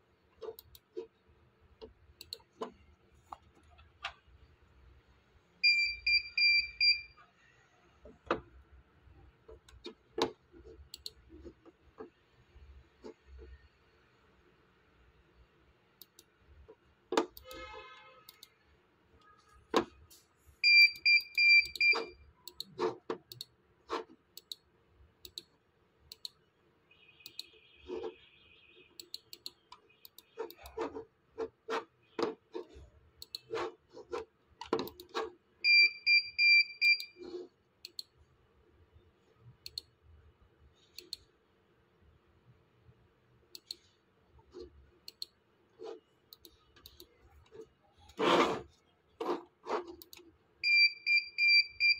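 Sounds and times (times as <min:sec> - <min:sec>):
computer mouse clicking: 0:00.4 - 0:01.1, 0:01.8 - 0:04.2, 0:09.5 - 0:12.2, 0:16.0 - 0:17.6, 0:18.3 - 0:18.5, 0:21.0 - 0:26.4, 0:27.2 - 0:28.2, 0:29.0 - 0:35.3, 0:37.0 - 0:38.2, 0:39.6 - 0:40.0, 0:40.8 - 0:41.3, 0:43.5 - 0:48.6, 0:49.2 - 0:50.3.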